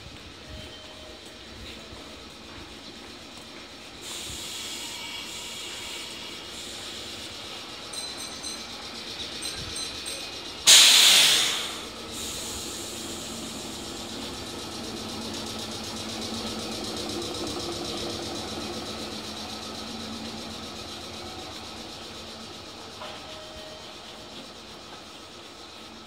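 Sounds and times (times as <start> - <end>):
train equipment humming: 0.0 - 26.0
compressed air hiss: 3.9 - 7.6, 10.6 - 16.6.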